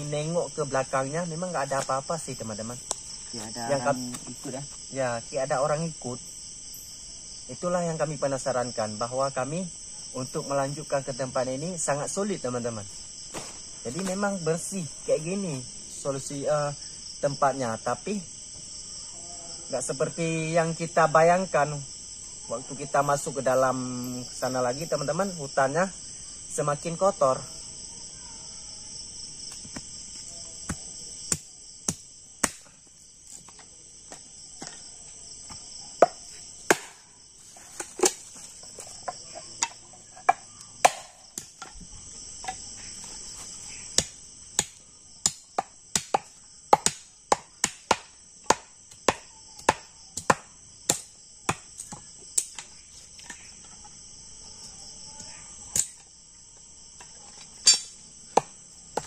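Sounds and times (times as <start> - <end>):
crickets chirping: 0.0 - 59.0
bamboo being chopped: 2.8 - 4.4, 13.3 - 14.4, 29.5 - 29.9, 30.6 - 34.8, 35.5 - 41.8, 43.9 - 53.4, 55.7 - 56.1, 57.0 - 59.0.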